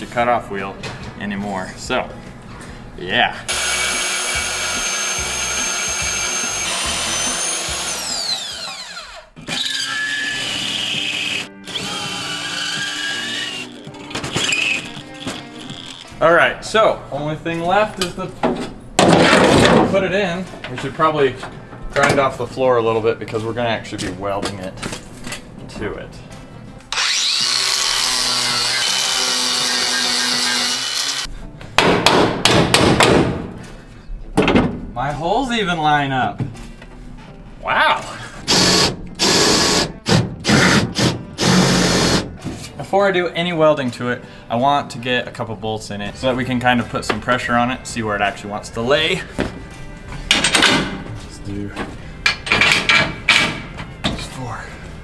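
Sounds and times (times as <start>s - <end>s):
power drill boring steel: 3.5s - 13.8s, 26.9s - 31.3s
band saw cutting steel: 3.5s - 16.0s, 26.9s - 31.3s
angle grinder grinding metal: 3.5s - 16.1s, 26.9s - 31.3s
metal clanks and knocks: 50.2s - 51.2s, 51.8s - 54.3s.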